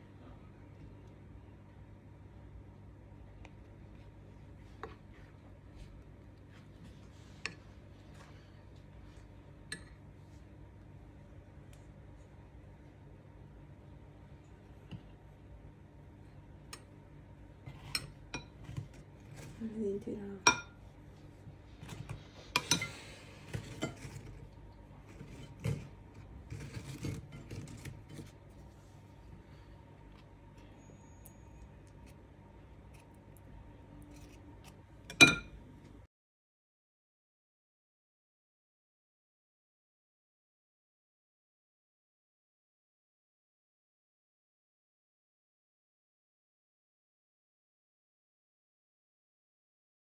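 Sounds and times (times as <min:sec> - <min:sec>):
faint low hum: 0:00.0 - 0:36.1
cookies scraping and rustling: 0:17.6 - 0:19.8, 0:21.7 - 0:29.4
cookies clinking in ceramic bowl: 0:22.5 - 0:24.4, 0:35.1 - 0:35.6.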